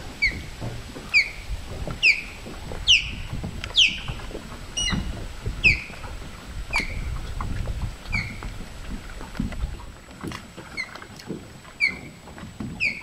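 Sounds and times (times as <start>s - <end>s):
osprey whistling calls: 0.2s - 0.5s, 1.1s - 4.2s, 4.8s - 6.0s, 6.7s - 7.1s, 8.1s - 8.4s, 11.8s - 12.2s, 12.8s - 13.0s.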